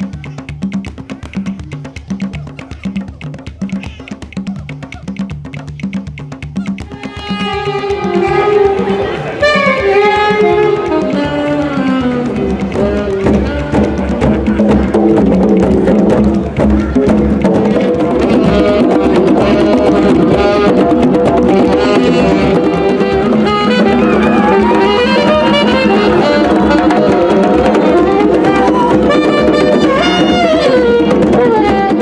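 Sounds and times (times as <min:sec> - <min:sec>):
djembe hand drums: 0:00.0 - 0:32.0
saxophone melody: 0:06.5 - 0:32.0.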